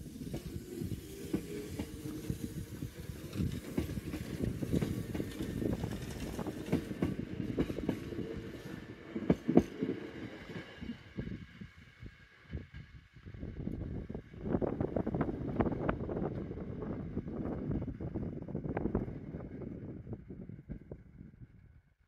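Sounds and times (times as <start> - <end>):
electric train running past: 0.0 - 21.7.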